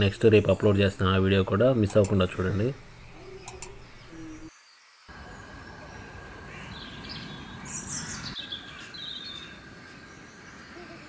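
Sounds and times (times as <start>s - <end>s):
low bird calls: 2.4s - 4.5s, 5.1s - 9.6s
high falling bird chirps: 2.4s - 11.0s.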